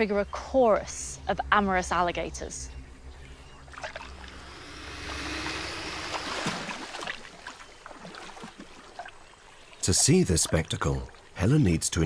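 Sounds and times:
low hum: 0.0s - 8.2s
water sloshing: 2.7s - 11.4s.

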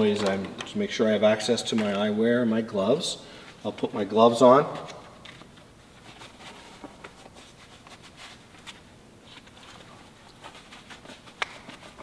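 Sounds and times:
glove material rustling: 5.8s - 12.0s.

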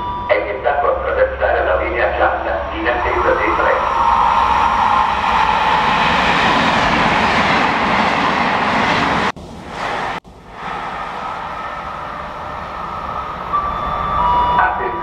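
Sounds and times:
train wheels rushing on rail: 2.9s - 14.4s.

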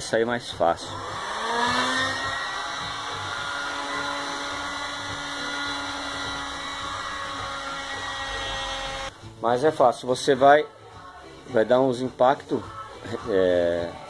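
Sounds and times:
heat gun fan whine: 0.6s - 9.2s.

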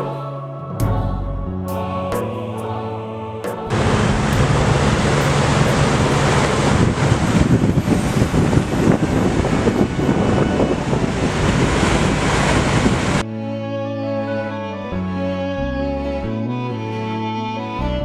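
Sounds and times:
water rushing past boat: 3.7s - 13.2s
wind buffeting microphone: 3.7s - 13.2s.

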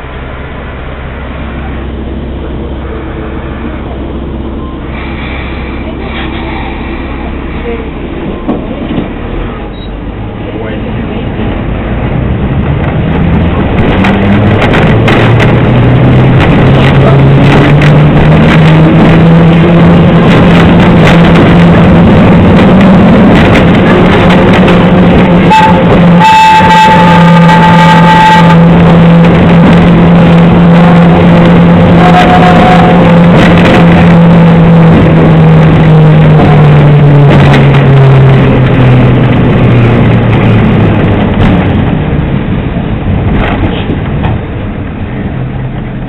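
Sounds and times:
diesel engine droning: 0.0s - 46.0s
tram car rattling: 0.0s - 46.0s
tram whistle blowing: 24.8s - 29.4s, 30.3s - 34.2s.

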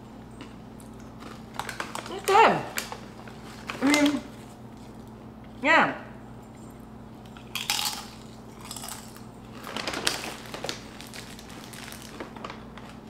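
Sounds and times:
tortilla chip crunching: 0.8s - 5.2s, 7.2s - 13.0s.

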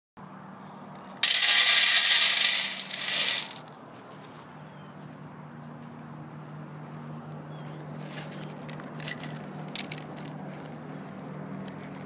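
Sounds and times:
kibble rattling onto metal tray: 1.2s - 3.6s.

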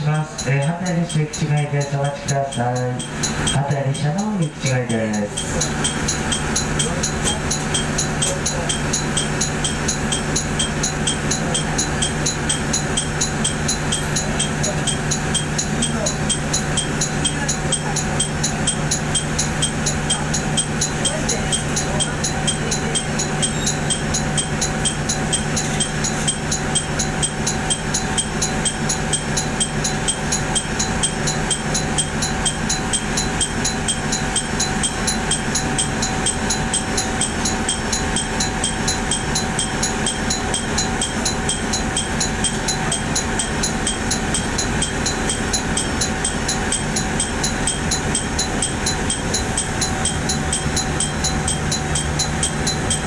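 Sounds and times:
diesel railcar engine idling: 0.0s - 53.0s
fast high ticking: 0.0s - 53.0s.

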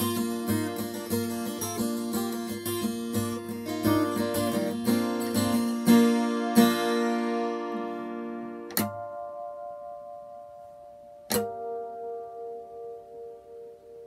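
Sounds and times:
acoustic guitar picked notes: 0.0s - 14.0s
acoustic guitar strummed chords: 0.0s - 14.0s
sharp hit on guitar strings: 11.3s - 11.9s.

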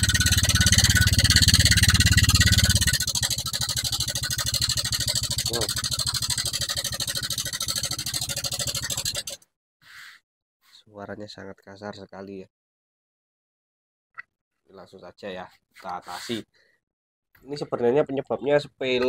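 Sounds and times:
scooter engine clattering: 0.0s - 9.4s.

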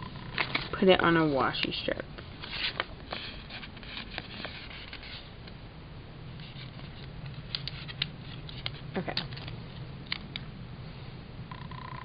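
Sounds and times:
paper sticker sheets rustling: 2.4s - 5.3s, 6.4s - 9.6s.

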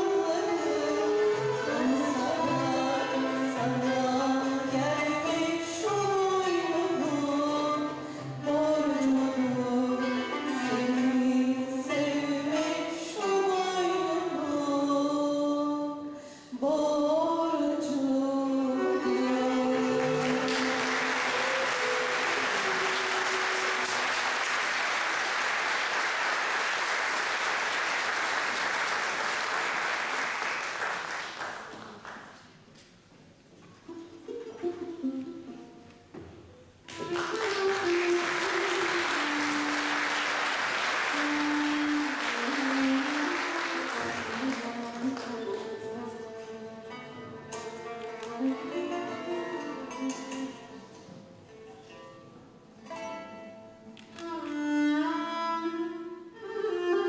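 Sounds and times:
woman singing: 0.0s - 21.1s
classical music ensemble: 0.0s - 57.0s
audience applauding: 20.0s - 32.5s, 36.9s - 45.7s.

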